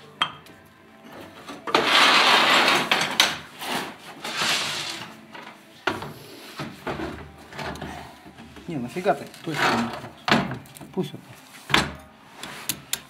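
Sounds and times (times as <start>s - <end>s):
rubbing and rustling: 1.2s - 10.2s
loud scrape: 1.7s - 5.2s.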